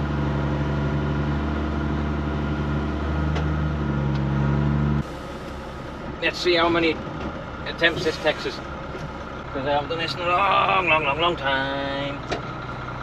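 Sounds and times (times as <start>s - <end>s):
diesel lorry engine running: 0.0s - 13.0s.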